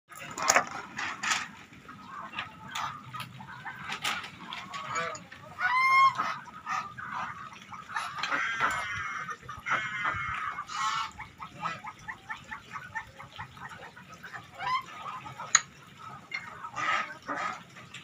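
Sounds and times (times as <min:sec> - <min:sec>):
geese ducks and chickens calling: 0:00.2 - 0:18.0
loud goose honk: 0:04.7 - 0:12.2.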